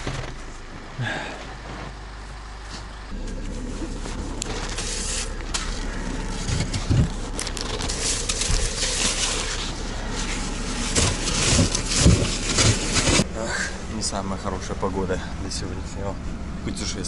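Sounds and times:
frozen snow crunching and scraping: 0:00.0 - 0:13.3
steady low rumble: 0:00.0 - 0:17.0.

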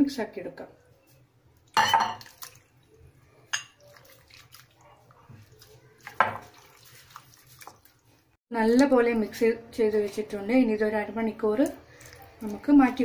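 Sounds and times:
spatula stirring squelching: 0:01.0 - 0:08.4
liver slopping into paste: 0:01.6 - 0:03.1, 0:03.8 - 0:08.1.

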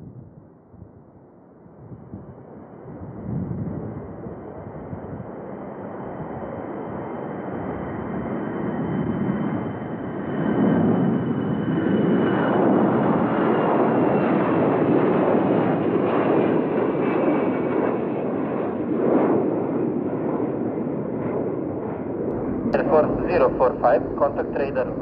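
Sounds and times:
faint high whine: 0:22.3 - 0:25.0
jet engines roaring: 0:22.3 - 0:25.0.

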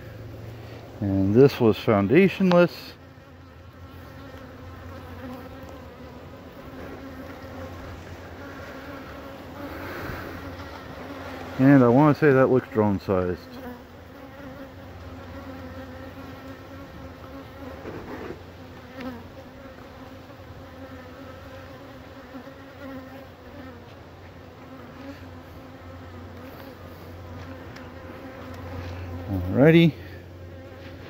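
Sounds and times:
bees buzzing: 0:00.0 - 0:31.0.

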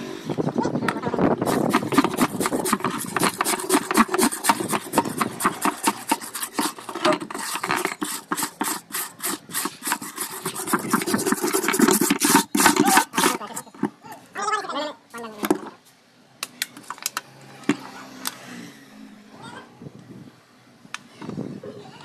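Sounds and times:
scrub brush scrubbing plastic tub: 0:01.4 - 0:14.0.

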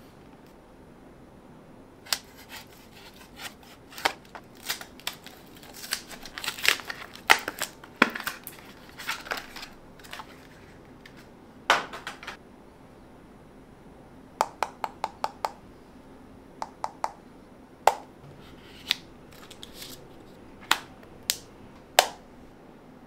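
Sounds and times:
plastic and paper crinkling: 0:02.1 - 0:11.3, 0:18.4 - 0:20.4
plastic packaging snapping: 0:03.3 - 0:11.2, 0:20.6 - 0:22.2.

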